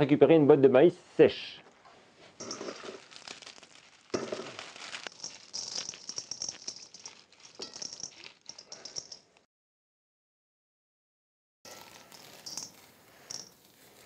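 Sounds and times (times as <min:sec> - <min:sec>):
corn kernels rattling into metal bowl: 0:02.4 - 0:09.2, 0:11.7 - 0:14.0.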